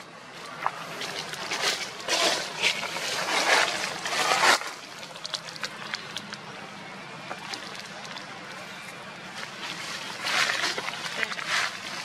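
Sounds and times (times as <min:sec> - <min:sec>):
dry leaves rustling and crunching: 0:00.8 - 0:04.8, 0:09.4 - 0:12.0.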